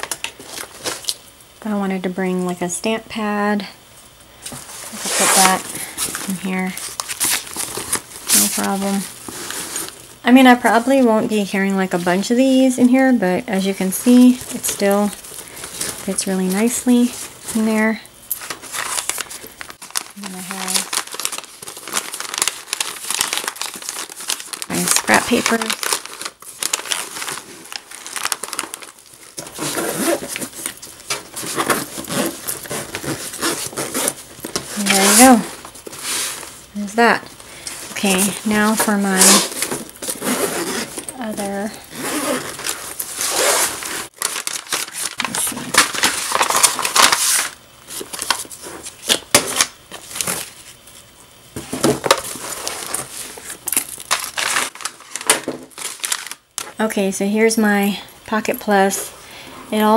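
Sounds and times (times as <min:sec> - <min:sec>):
paper crinkling: 0:04.5 - 0:10.0, 0:13.8 - 0:56.8
nylon fabric rustling: 0:04.6 - 0:10.0, 0:14.0 - 0:37.0, 0:37.9 - 0:45.4.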